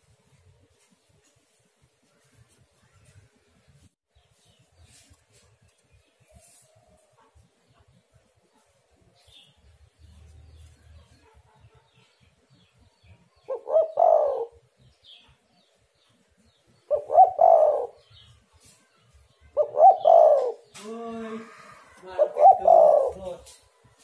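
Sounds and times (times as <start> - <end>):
dove cooing: 13.5 - 14.6, 16.9 - 18.1, 19.6 - 20.7, 21.6 - 23.4.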